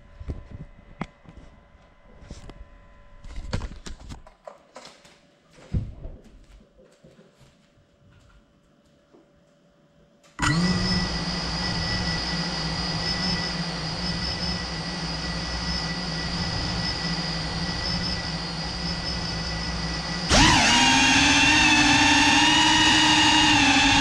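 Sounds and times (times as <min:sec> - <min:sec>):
drone motors whining: 0:10.4 - 0:24.0.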